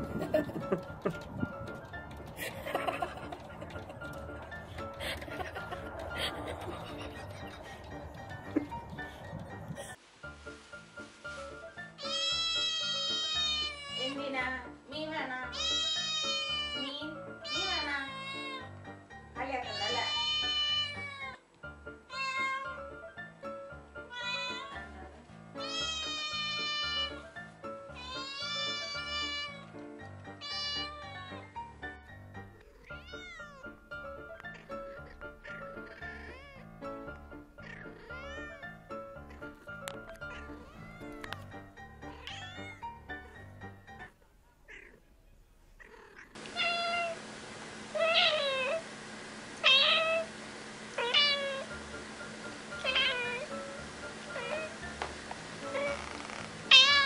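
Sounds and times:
cat meowing: 0:12.0 - 0:14.2, 0:15.5 - 0:18.7, 0:19.7 - 0:21.4, 0:22.1 - 0:22.8, 0:24.0 - 0:25.0, 0:25.6 - 0:27.2, 0:27.9 - 0:29.7, 0:30.4 - 0:31.5, 0:32.6 - 0:33.8, 0:34.5 - 0:36.8, 0:37.6 - 0:38.8, 0:40.1 - 0:43.3, 0:44.7 - 0:45.1, 0:45.8 - 0:47.2, 0:49.6 - 0:50.3, 0:51.0 - 0:51.7, 0:52.8 - 0:53.5, 0:54.3 - 0:54.8, 0:55.7 - 0:57.0.

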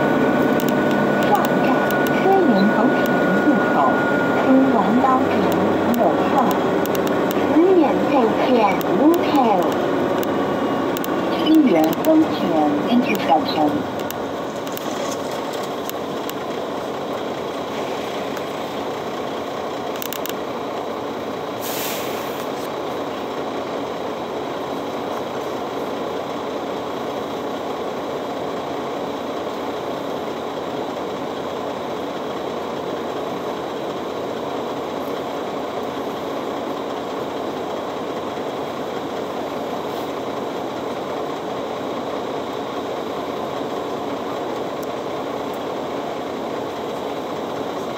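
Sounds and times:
bus engine idling: 0:00.0 - 0:47.9
brief air hiss: 0:21.6 - 0:22.6.

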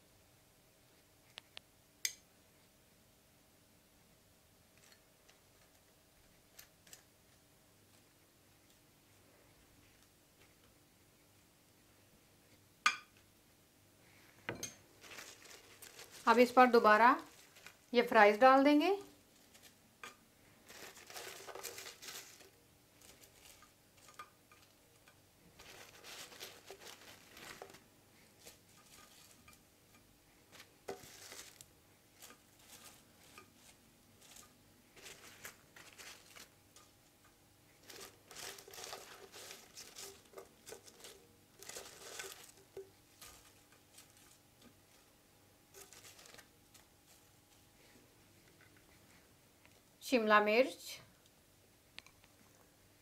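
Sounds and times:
fries rustling: 0:14.8 - 0:49.3.

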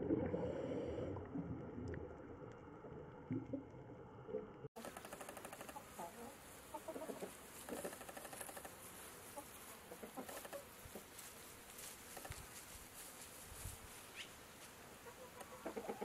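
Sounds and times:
chickens clucking: 0:04.8 - 0:11.2, 0:15.0 - 0:16.0
faint steady hiss: 0:04.8 - 0:16.0.

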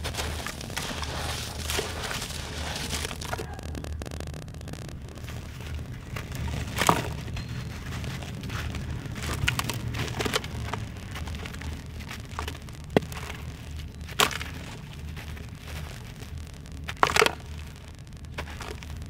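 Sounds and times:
sand cement crumbling by hand: 0:00.0 - 0:19.0
steady low hum: 0:00.0 - 0:19.0.

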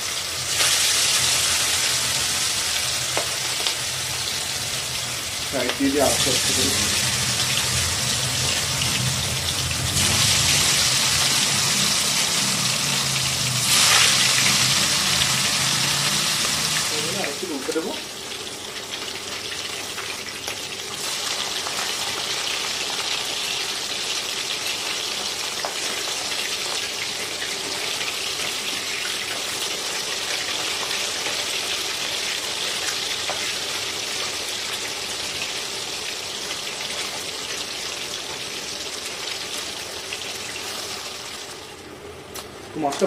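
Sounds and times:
fish sizzling in hot oil: 0:00.0 - 0:43.0.

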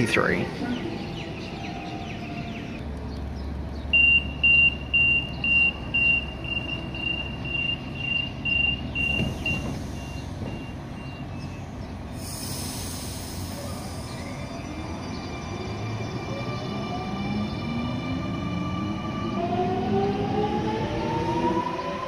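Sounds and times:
electric train rumbling: 0:00.0 - 0:22.0
train hissing: 0:09.0 - 0:10.9, 0:12.0 - 0:15.9.

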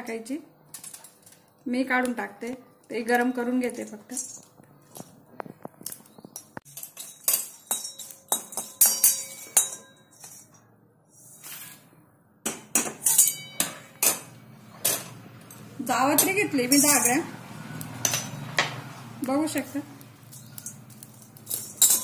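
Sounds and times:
metal spatula scraping iron pan: 0:06.7 - 0:11.9, 0:15.9 - 0:18.9, 0:20.2 - 0:22.0.

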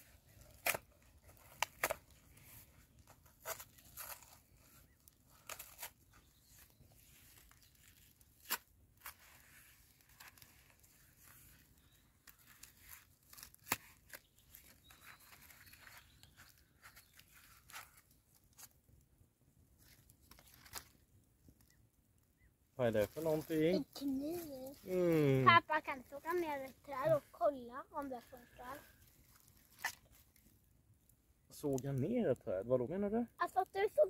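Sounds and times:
wrapping paper tearing and crinkling: 0:00.0 - 0:18.8, 0:19.8 - 0:21.0, 0:23.0 - 0:30.6.

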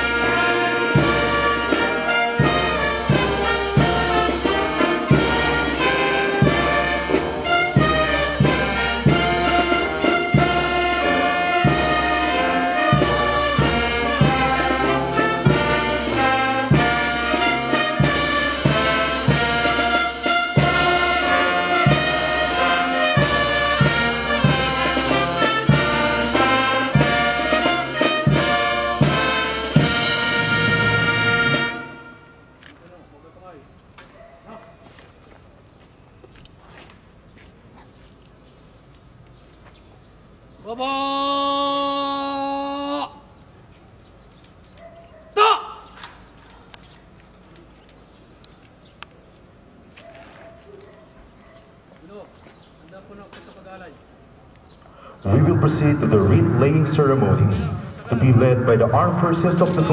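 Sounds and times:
brass band playing: 0:00.0 - 0:32.6, 0:55.2 - 0:59.9
drum beating: 0:00.1 - 0:31.8.

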